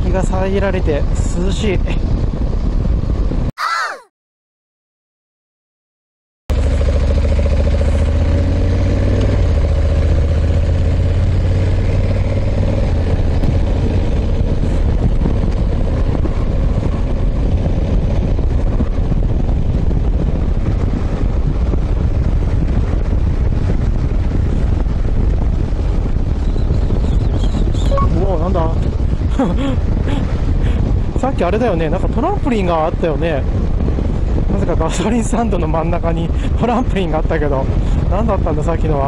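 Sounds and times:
wind rushing over microphone: 0.0 - 4.1, 6.5 - 39.0
motorcycle engine running: 6.5 - 27.2.

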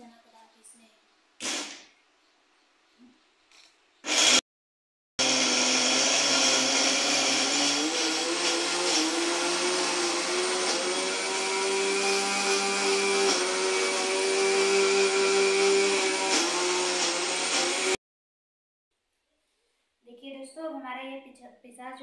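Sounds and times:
mixer grinder motor hum: 4.0 - 4.4, 5.2 - 18.0.

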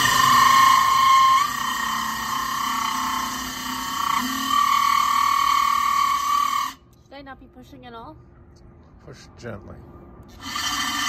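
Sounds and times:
cordless drill whining: 0.0 - 6.8, 10.3 - 11.0.

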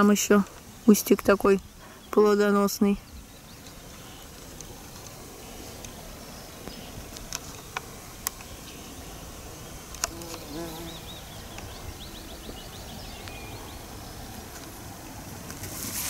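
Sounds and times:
open-air background noise: 0.0 - 16.0
flying insect buzzing: 7.6 - 12.5.

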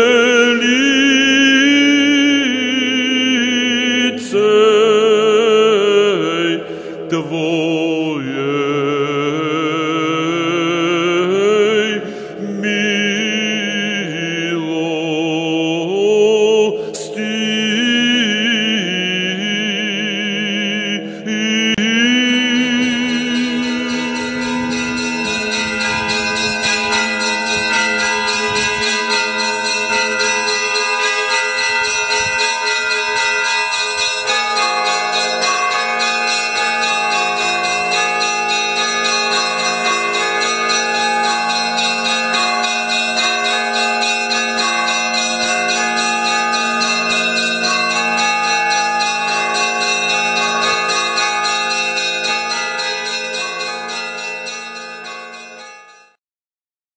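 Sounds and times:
small bells ringing a peal: 0.0 - 7.3, 21.5 - 56.2
deep bell ringing: 21.8 - 56.2.

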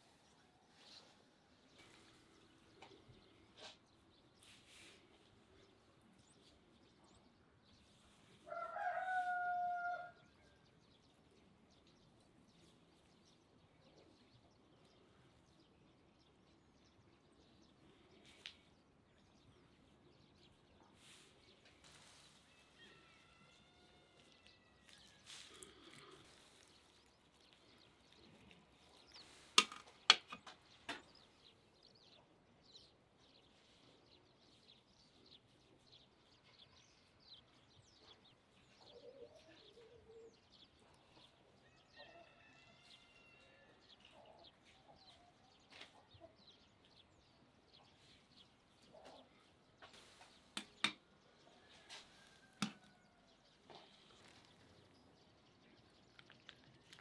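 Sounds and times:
rooster crowing: 8.5 - 10.5, 22.7 - 25.1, 41.8 - 43.8
faint bird chirps: 30.5 - 57.0.

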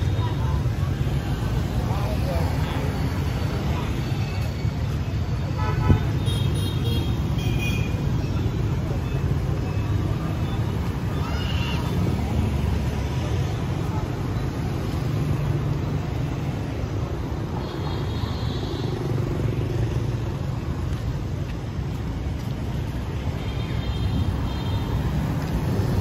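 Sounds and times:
faint voices: 0.0 - 5.5
rumble of passing vehicles: 0.0 - 26.0.

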